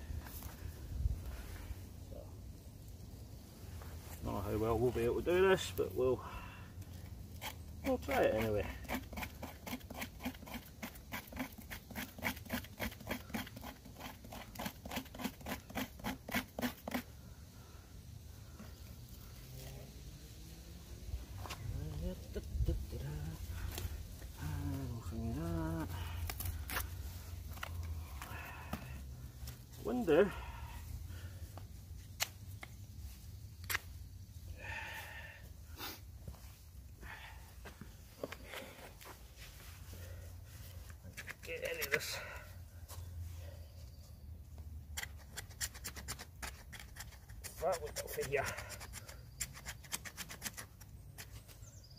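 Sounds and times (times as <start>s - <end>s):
knife scraping wood: 7.3s - 17.1s, 44.9s - 51.6s.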